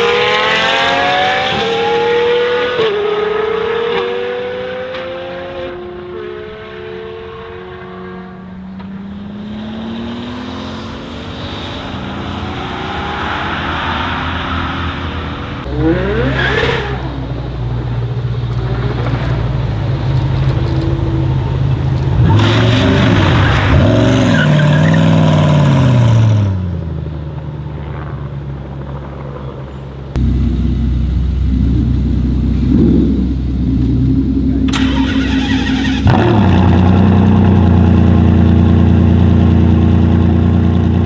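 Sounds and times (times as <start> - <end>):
car engine revving hard: 0.0 - 8.2, 31.4 - 40.8
race car engine on track: 0.0 - 41.0
car engine idling: 28.9 - 41.0.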